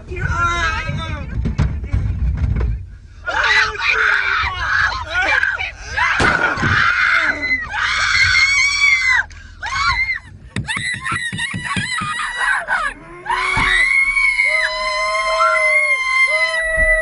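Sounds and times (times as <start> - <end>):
people screaming in terror: 3.3 - 17.0.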